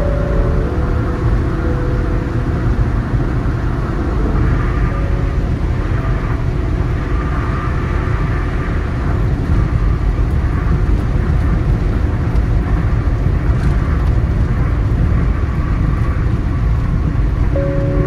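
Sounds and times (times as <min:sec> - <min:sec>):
car road and engine noise: 0:00.0 - 0:18.0.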